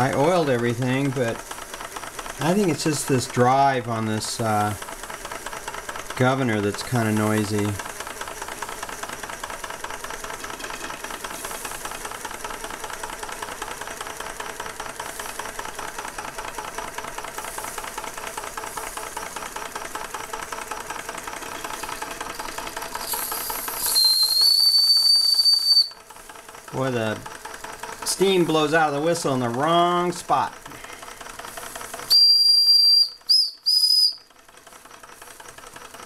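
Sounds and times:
steam hissing: 0:00.0 - 0:09.3, 0:10.3 - 0:26.0, 0:29.8 - 0:34.2
toy steam engine clattering: 0:00.0 - 0:36.0
high-pitched steam whistle: 0:23.0 - 0:26.0, 0:32.1 - 0:34.2.

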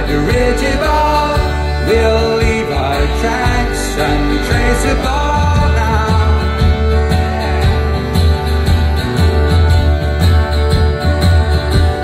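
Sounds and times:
man singing: 0:00.0 - 0:07.4
bass: 0:00.0 - 0:12.0
drums: 0:00.0 - 0:12.0
strummed acoustic guitar: 0:00.0 - 0:12.0.

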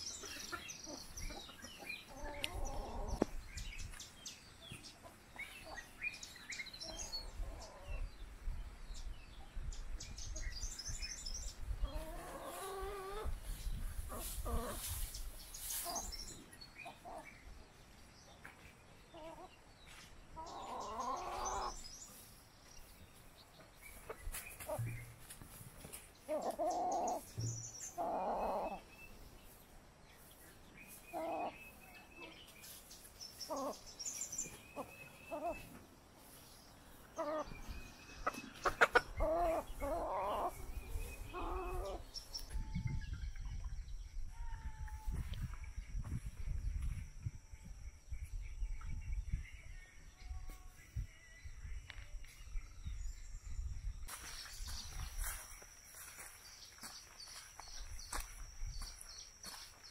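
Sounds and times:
chickens clucking: 0:00.0 - 0:04.0, 0:04.6 - 0:08.1, 0:11.6 - 0:23.0, 0:23.6 - 0:42.7.

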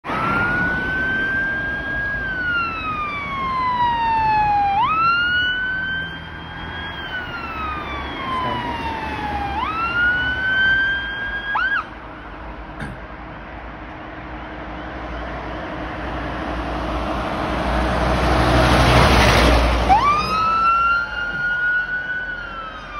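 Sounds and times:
emergency vehicle siren wailing: 0:00.0 - 0:12.7, 0:13.7 - 0:22.9
siren chirp: 0:00.1 - 0:11.9, 0:19.9 - 0:22.9.

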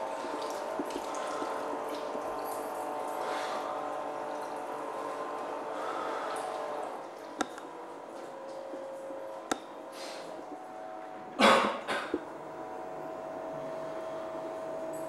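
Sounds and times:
faint hum: 0:00.0 - 0:15.0
person coughing: 0:11.4 - 0:12.2.

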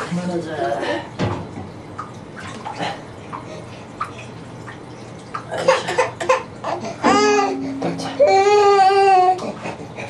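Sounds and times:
toddler babbling and giggling: 0:06.7 - 0:09.8
toddler whining: 0:06.8 - 0:09.6.

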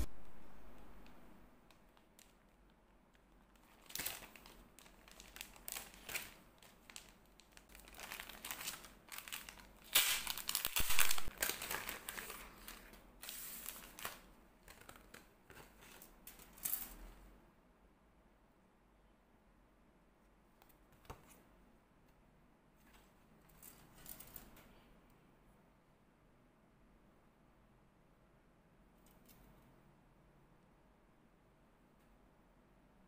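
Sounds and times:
plastic bag crinkling: 0:03.2 - 0:15.2.

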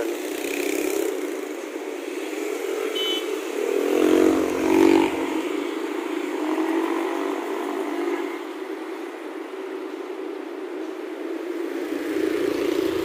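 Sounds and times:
cars and motorcycles passing: 0:00.0 - 0:13.0
vehicle engine passing close: 0:03.8 - 0:05.5.

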